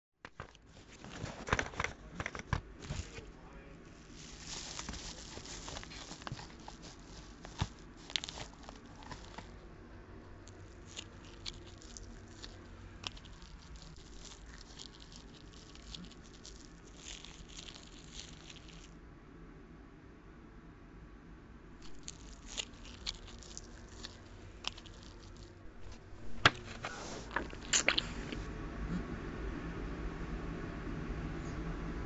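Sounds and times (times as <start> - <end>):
paper crinkling and rustling: 0.3 - 9.6, 10.3 - 18.9, 21.8 - 28.5.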